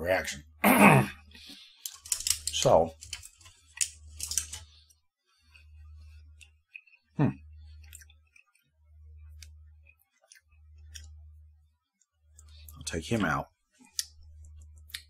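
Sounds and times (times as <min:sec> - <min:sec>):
man chewing candy: 0:03.3 - 0:12.9, 0:13.7 - 0:15.0.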